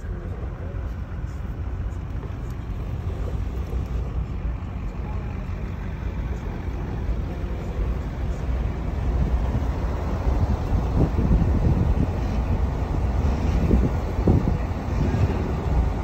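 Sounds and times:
truck running noise: 0.0 - 16.0
wind: 0.0 - 16.0.

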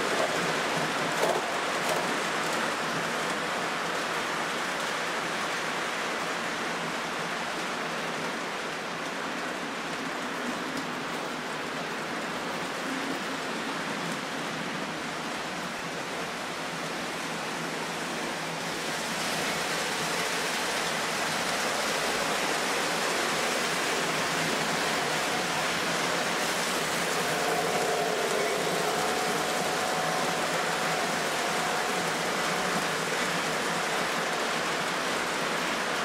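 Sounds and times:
model train wheels on rails: 0.0 - 6.4, 13.8 - 36.0
humming tone: 23.1 - 35.3.

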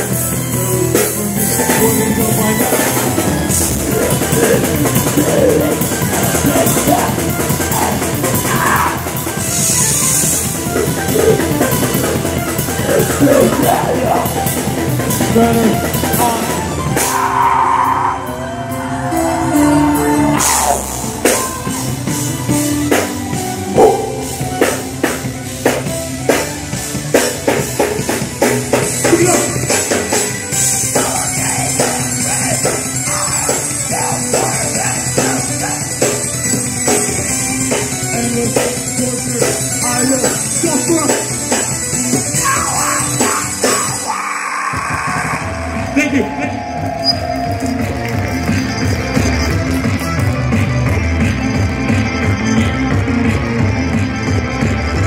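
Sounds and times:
fast hard-hit drums: 0.0 - 17.2
live rock band playing: 0.0 - 55.0
shouted vocals: 4.0 - 9.1, 42.4 - 47.6.

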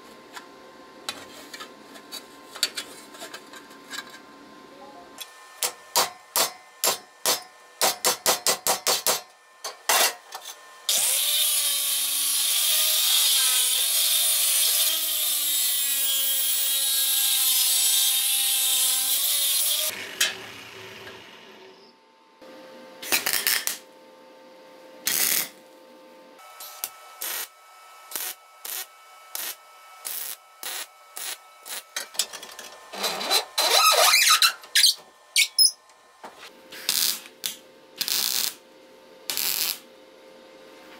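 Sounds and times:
welding bursts: 23.0 - 23.8, 25.0 - 25.6, 26.6 - 27.5, 28.1 - 32.0, 36.8 - 38.6, 39.3 - 39.8.

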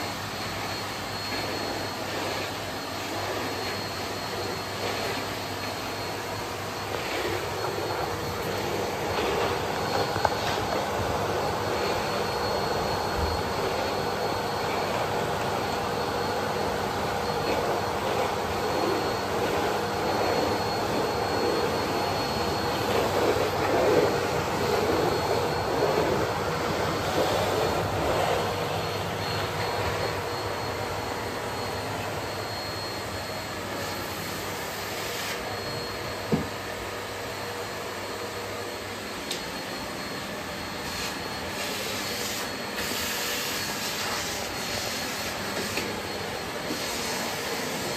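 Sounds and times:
vacuum cleaner running: 0.0 - 47.9.

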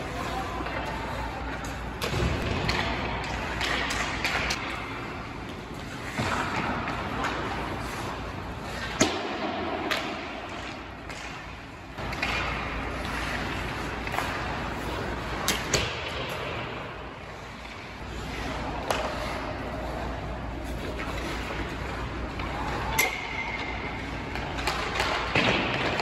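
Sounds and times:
skates scraping on ice: 0.0 - 26.0
stick and puck clacks: 0.2 - 26.0.

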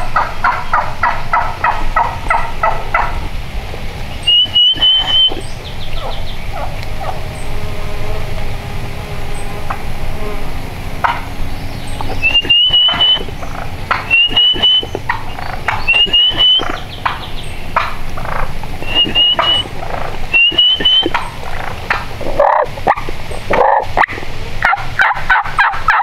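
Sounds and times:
steady outdoor hiss: 0.0 - 26.0
bird rising run of high notes: 4.1 - 7.5, 11.3 - 17.8, 18.7 - 21.6
short bird calls: 4.1 - 7.6, 11.0 - 22.7.

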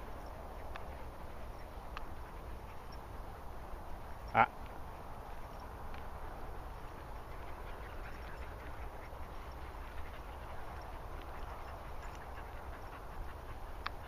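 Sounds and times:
dog panting: 6.5 - 14.0.

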